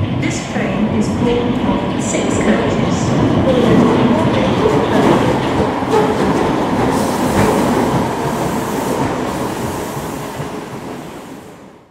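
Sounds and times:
electric train running: 2.1 - 11.5.

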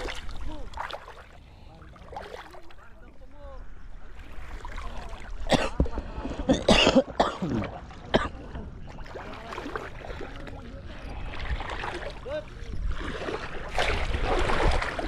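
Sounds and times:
person clearing throat: 5.5 - 5.8, 6.5 - 8.4
person coughing: 5.5 - 5.8, 6.5 - 8.4.

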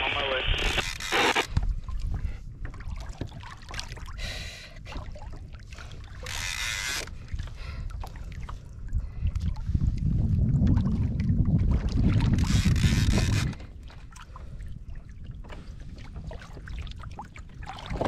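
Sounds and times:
water splashing: 2.7 - 4.2, 15.9 - 18.0
wind rumble on microphone: 7.1 - 18.0.

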